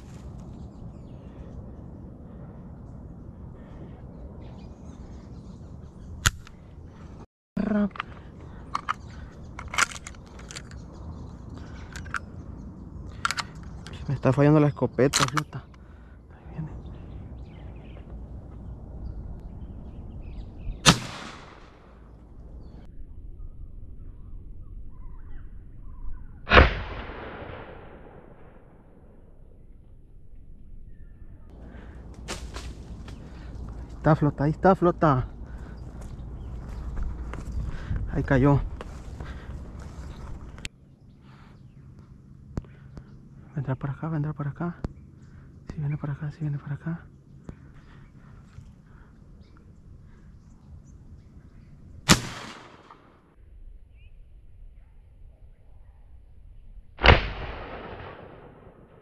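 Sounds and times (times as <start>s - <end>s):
outdoor background noise: 0.0s - 59.0s
shotgun shots with echo: 20.8s - 21.8s, 26.5s - 28.6s, 52.1s - 53.1s, 57.0s - 59.0s.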